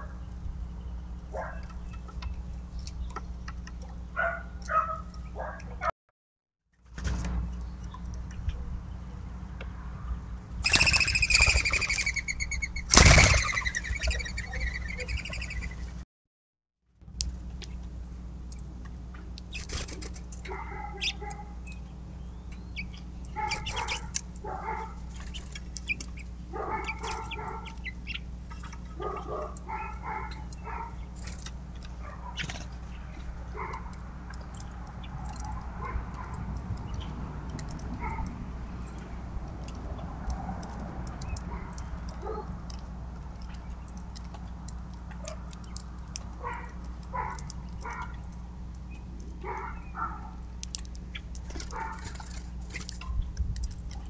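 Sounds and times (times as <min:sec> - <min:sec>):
steady low hum: 0:00.0 - 0:05.9, 0:06.8 - 0:16.0, 0:17.0 - 0:54.0
small birds chirping: 0:07.5 - 0:16.0, 0:19.3 - 0:39.8, 0:41.0 - 0:54.0
loud whistled bird calls: 0:10.6 - 0:15.9.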